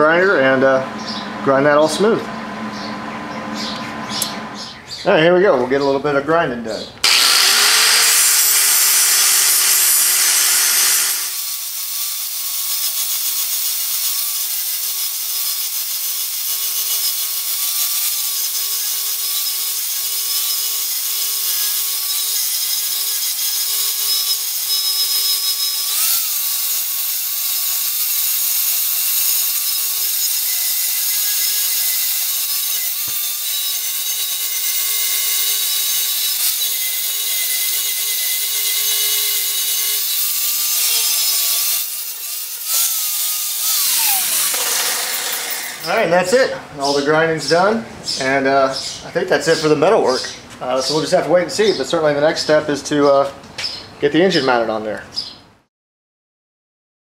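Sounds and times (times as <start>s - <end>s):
angle grinder grinding steel: 7.0s - 47.2s.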